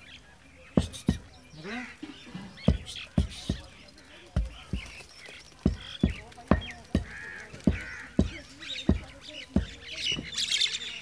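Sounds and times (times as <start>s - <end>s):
birds chirping: 0.0s - 11.0s
footsteps on packed earth: 0.6s - 11.0s.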